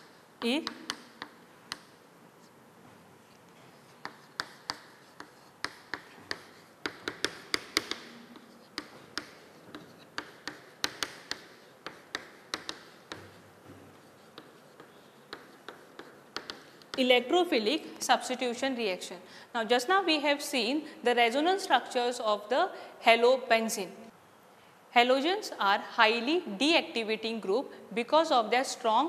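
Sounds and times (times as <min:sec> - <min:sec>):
chalk tapping on chalkboard: 0:00.0 - 0:02.6, 0:03.3 - 0:17.1
chalk scratching: 0:03.2 - 0:17.1.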